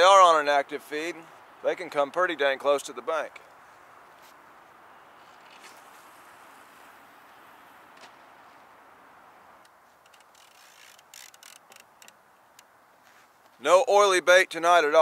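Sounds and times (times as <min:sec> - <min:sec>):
fishing tackle clicking: 0:10.0 - 0:12.7.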